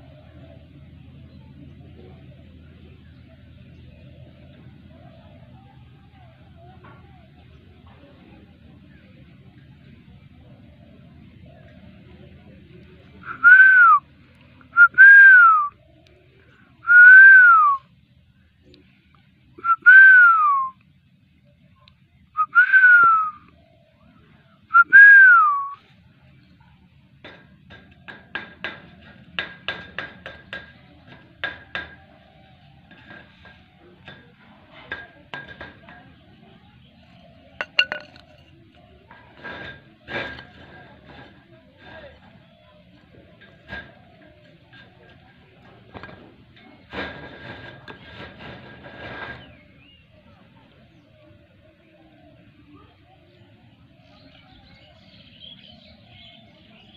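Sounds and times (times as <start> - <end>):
person whistling: 13.3 - 14.0, 16.9 - 17.8, 22.4 - 23.4, 24.7 - 25.8
beaks tapping clay pot: 27.2 - 49.4
rough scraping: 30.5 - 50.1.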